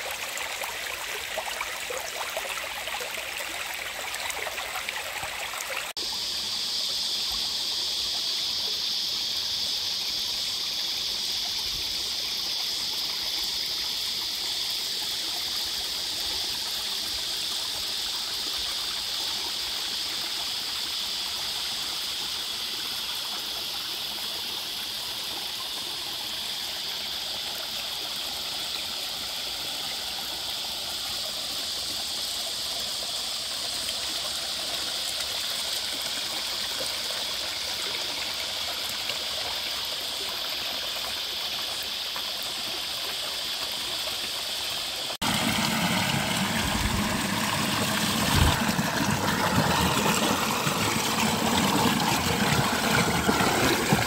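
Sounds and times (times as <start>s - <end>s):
creek water running: 0.0s - 54.0s.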